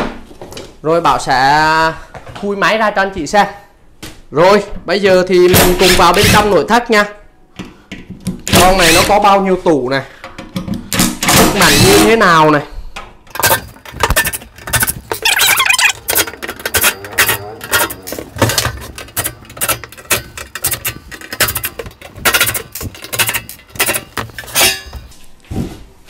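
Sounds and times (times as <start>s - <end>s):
metal casing clinks and rattles: 13.3s - 25.0s.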